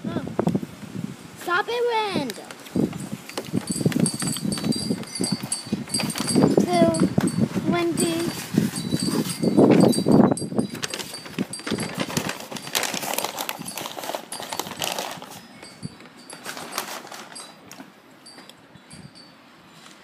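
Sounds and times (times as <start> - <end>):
paper packaging rustling: 2.4 - 7.3, 7.9 - 17.9.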